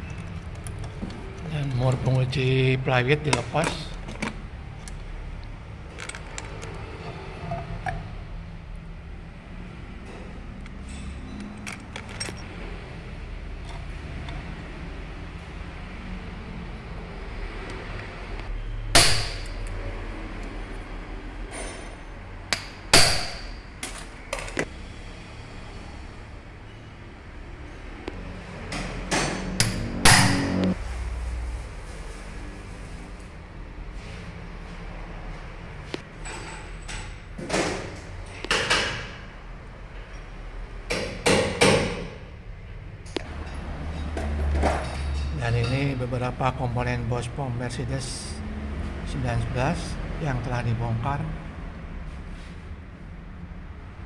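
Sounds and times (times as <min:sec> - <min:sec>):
hammer striking metal: 0:18.9 - 0:19.7, 0:21.6 - 0:23.6, 0:28.7 - 0:30.8
metal knocks and clanks: 0:28.6 - 0:30.8.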